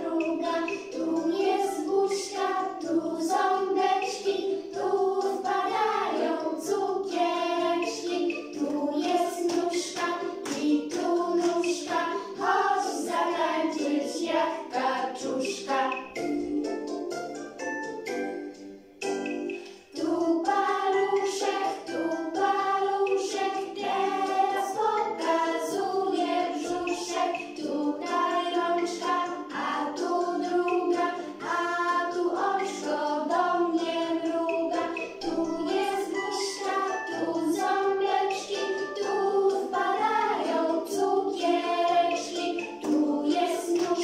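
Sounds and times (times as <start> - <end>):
group singing in unison: 0.0 - 17.0, 19.8 - 44.0
light instrumental backing: 0.0 - 44.0.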